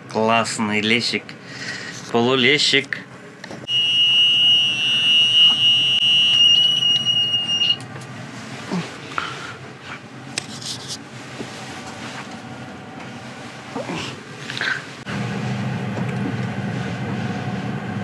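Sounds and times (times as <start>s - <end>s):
high-pitched alarm beep: 3.7s - 7.8s.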